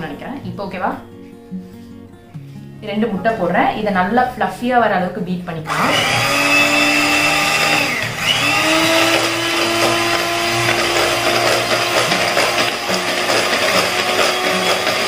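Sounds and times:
electric hand mixer whisking: 0:05.7 - 0:15.0.

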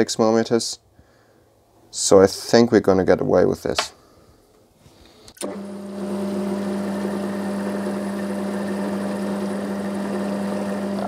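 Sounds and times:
lathe motor humming: 0:05.4 - 0:11.0.

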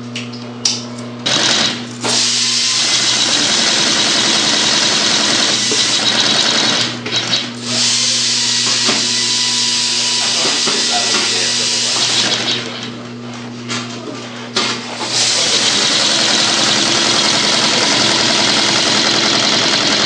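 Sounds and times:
sewing machine stitching: 0:01.3 - 0:07.4, 0:15.0 - 0:20.0.

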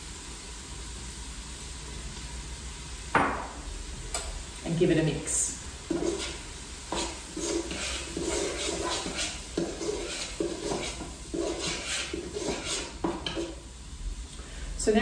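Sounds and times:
metal spoon scraping a pot: 0:05.9 - 0:13.6.

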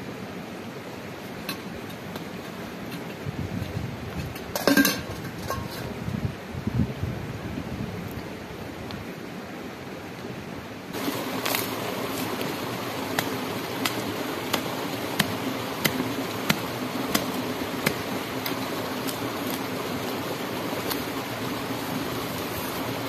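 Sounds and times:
stream running: 0:00.0 - 0:05.9, 0:08.1 - 0:23.0
hand tool striking ground: 0:13.1 - 0:19.7.

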